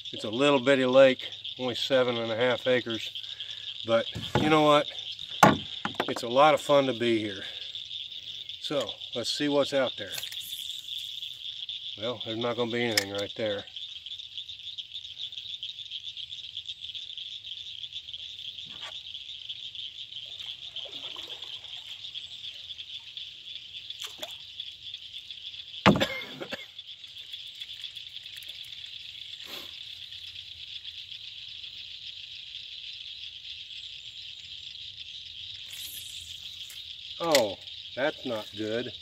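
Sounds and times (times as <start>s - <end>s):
insects chorus: 0.0s - 39.0s
knocks: 5.4s - 6.3s, 25.9s - 26.2s.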